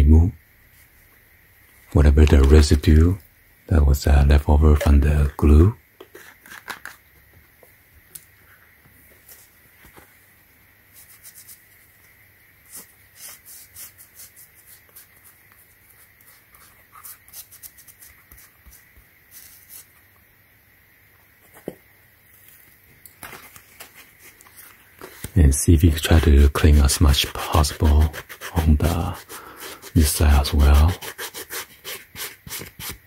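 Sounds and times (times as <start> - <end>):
plastic bottle cap twisting: 6.0 - 7.0
cotton ball rubbing rubber: 25.9 - 33.0.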